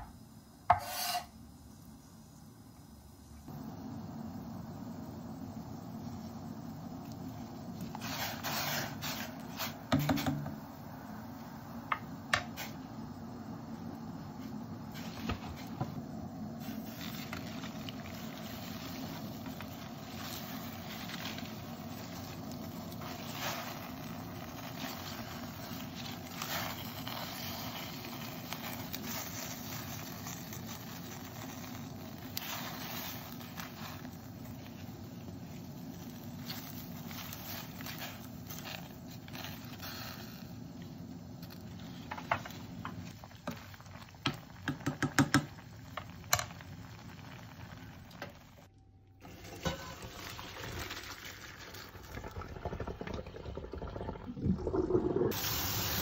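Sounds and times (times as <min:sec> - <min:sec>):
gas burner hum: 0:00.0 - 0:56.0
water boiling: 0:00.0 - 0:56.0
salt pouring into pot: 0:03.6 - 0:56.0
leaves rustling in water: 0:16.6 - 0:40.5
wooden spoon knocking pot: 0:44.2 - 0:45.6.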